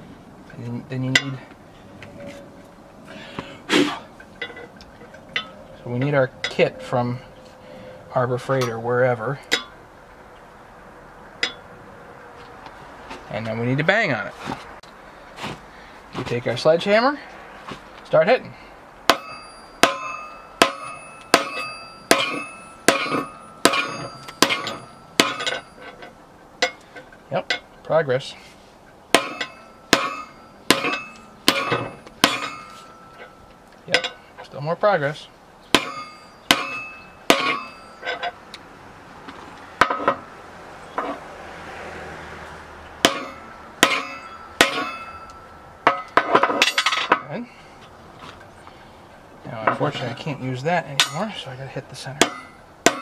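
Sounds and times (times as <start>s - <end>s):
light metal clinks and knocks: 4.0s - 7.6s, 9.4s - 9.8s, 11.4s - 11.7s, 19.0s - 27.9s, 28.8s - 34.7s, 35.7s - 40.3s, 43.0s - 53.0s
sledgehammer striking metal: 19.0s - 26.8s, 29.1s - 34.2s, 35.7s - 38.4s, 39.8s - 40.3s, 43.0s - 47.3s, 49.7s - 51.4s, 52.2s - 53.0s.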